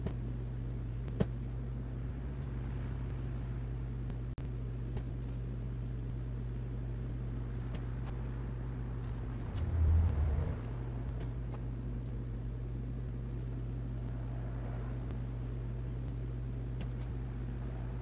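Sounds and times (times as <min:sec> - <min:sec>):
steady low hum: 0:00.0 - 0:18.0
low rumble: 0:06.0 - 0:18.0.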